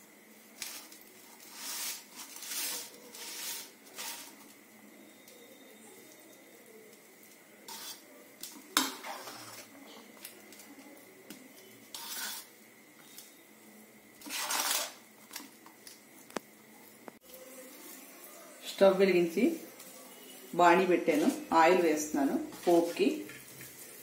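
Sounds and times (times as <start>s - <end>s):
spoon scraping a bowl: 1.4s - 4.4s, 7.7s - 8.0s, 8.8s - 9.7s, 11.9s - 12.5s, 14.2s - 15.0s.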